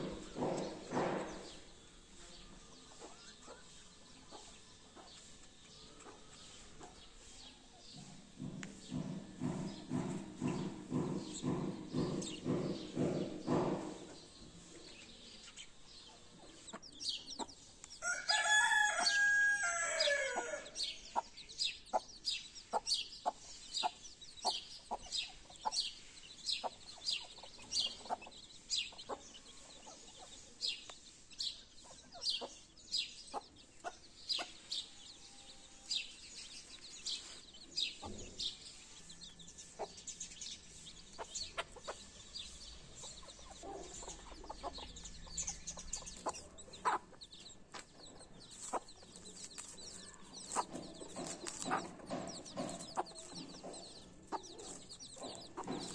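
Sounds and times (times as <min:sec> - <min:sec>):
chicks peeping: 0:00.0 - 0:55.9
rooster crowing: 0:18.0 - 0:20.8
hen clucking: 0:39.6 - 0:55.9.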